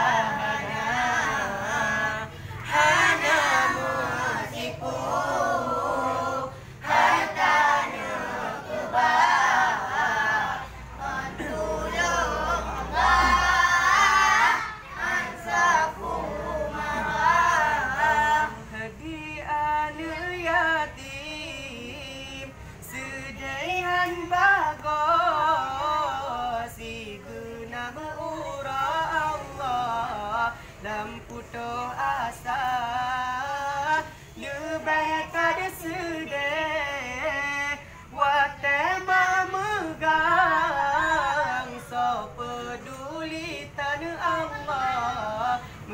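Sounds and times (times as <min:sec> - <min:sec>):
group of voices chanting: 0:00.0 - 0:18.7.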